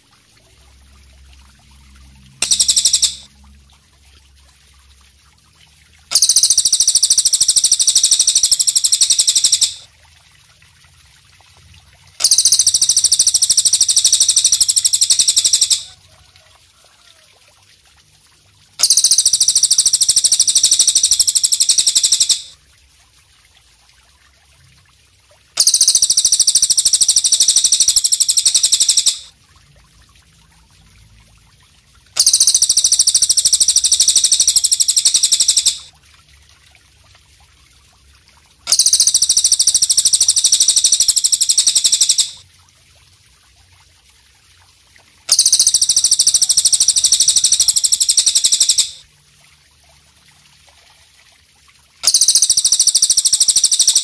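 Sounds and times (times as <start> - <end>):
katydid buzzing trill: 2.4 - 3.3, 6.1 - 9.8, 12.2 - 15.9, 18.8 - 22.5, 25.6 - 29.2, 32.2 - 35.9, 38.7 - 42.4, 45.3 - 49.0, 52.0 - 54.0.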